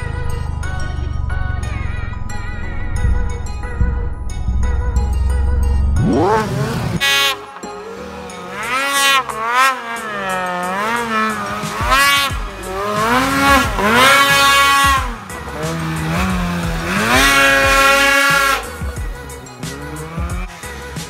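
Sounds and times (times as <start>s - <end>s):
snowmobile engine revving: 6.0s - 21.0s.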